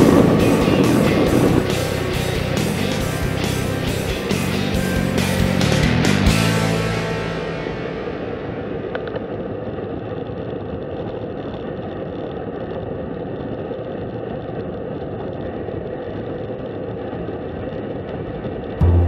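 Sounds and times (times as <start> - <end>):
wind rushing over microphone: 0.0 - 4.3
tyres humming on asphalt: 0.0 - 19.0.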